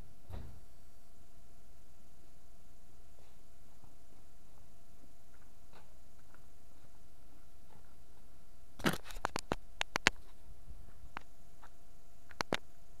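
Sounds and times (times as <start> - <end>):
camera handling rustle: 8.8 - 10.4
sharp clicks and knocks: 8.8 - 10.4, 11.1 - 12.7.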